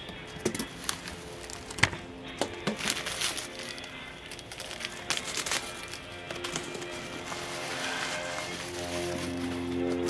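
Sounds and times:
faint background music: 0.0s - 10.0s
packing materials crinkling: 0.4s - 10.0s.

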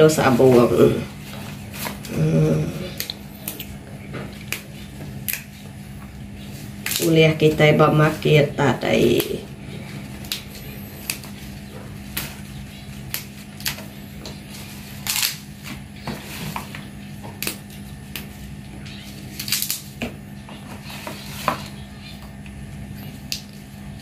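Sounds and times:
steady low hum: 0.0s - 24.0s
leaves snapping off stems: 4.4s - 5.5s, 6.8s - 7.2s, 13.0s - 13.9s, 15.0s - 15.4s, 19.3s - 20.0s, 23.2s - 23.6s.

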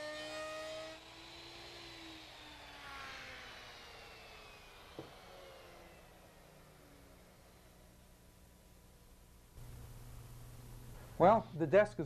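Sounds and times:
wood router spinning down: 0.0s - 8.1s.

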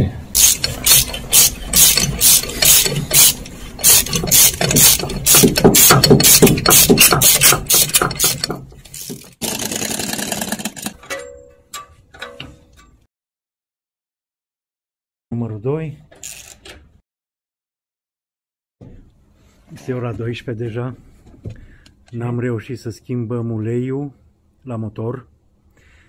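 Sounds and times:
socket ratchet clicking: 0.4s - 9.3s.

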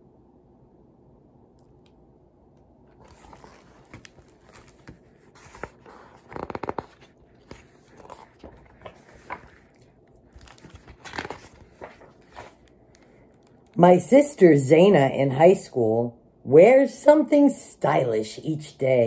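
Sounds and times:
book pages rustling: 2.9s - 13.8s.

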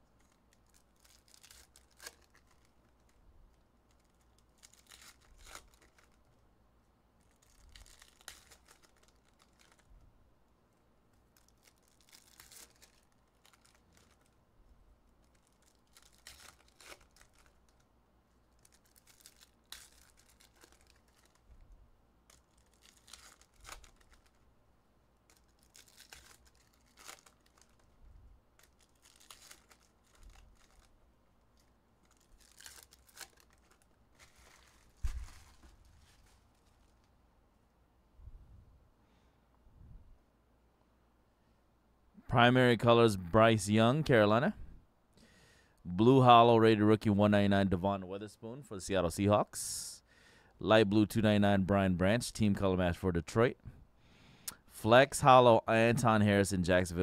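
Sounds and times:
foil wrappers tearing and crinkling: 0.2s - 3.2s, 3.9s - 6.3s, 7.2s - 9.9s, 11.1s - 14.4s, 15.1s - 17.8s, 18.5s - 21.5s, 22.2s - 24.4s, 25.2s - 27.9s, 28.6s - 31.0s, 31.6s - 37.1s.

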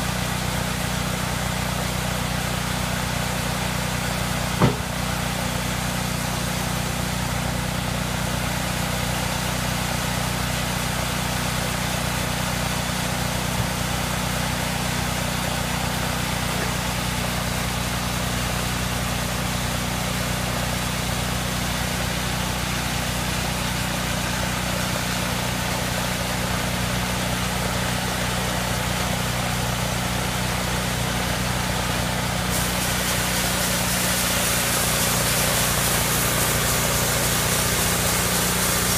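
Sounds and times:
sawmill engine running: 0.0s - 38.9s
knock: 4.6s - 4.9s
loud hiss: 32.5s - 38.9s.

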